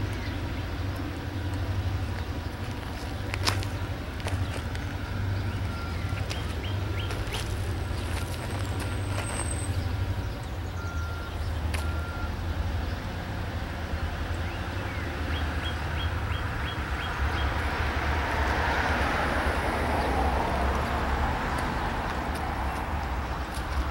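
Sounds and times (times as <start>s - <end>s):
bird chirping: 0.0s - 13.1s, 14.0s - 17.6s
diesel locomotives rumbling: 0.0s - 23.9s.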